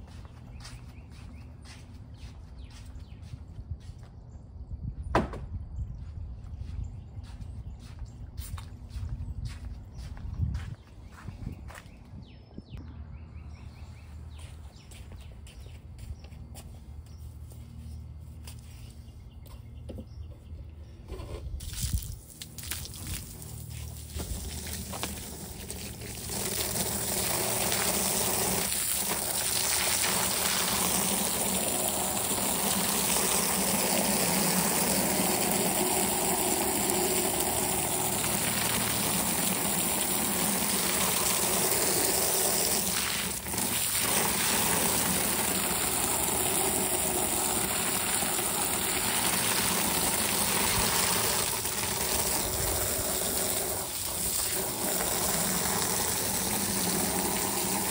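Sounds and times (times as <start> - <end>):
hose spraying water on concrete: 21.6 - 57.9.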